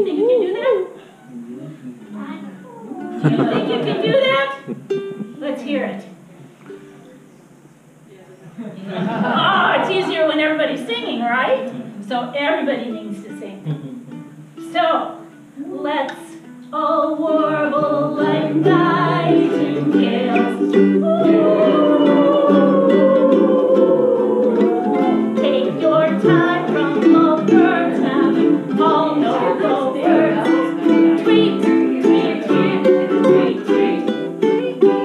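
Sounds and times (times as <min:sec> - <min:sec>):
voices singing: 0:02.6 - 0:06.2, 0:15.6 - 0:35.0
ukulele strumming: 0:03.0 - 0:07.0, 0:12.8 - 0:35.0.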